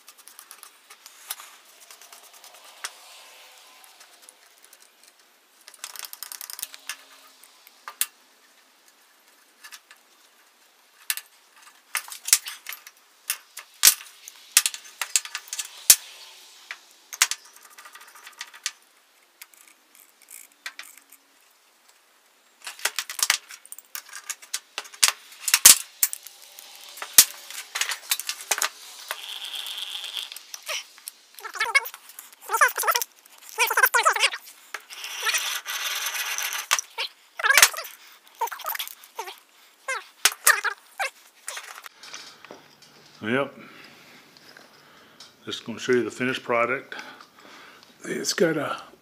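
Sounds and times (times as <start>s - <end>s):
hand drill whirring: 25.6s - 41.8s.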